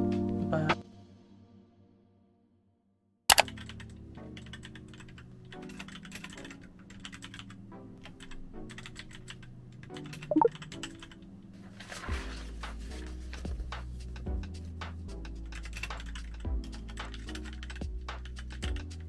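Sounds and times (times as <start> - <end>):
soft background music: 0.0 - 1.8, 3.3 - 19.0
computer keyboard key clicks: 3.3 - 3.8, 5.7 - 6.3
brief pitched sound: 10.3 - 10.5.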